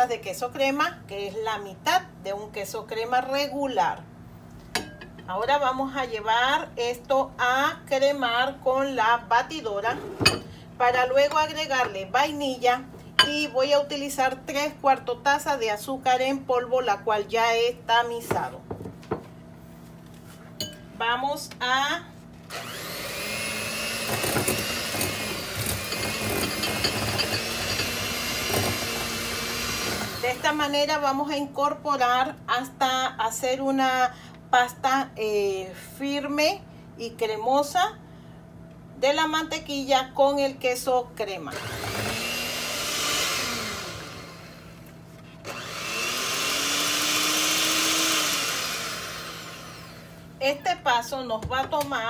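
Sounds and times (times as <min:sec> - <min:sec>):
electric hand mixer running: 0:22.5 - 0:30.6, 0:41.5 - 0:44.8, 0:45.4 - 0:50.2.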